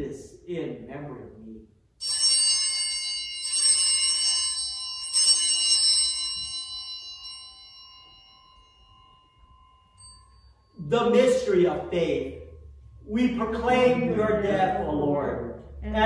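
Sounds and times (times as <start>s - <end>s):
altar bells jangling: 2.0s - 11.6s.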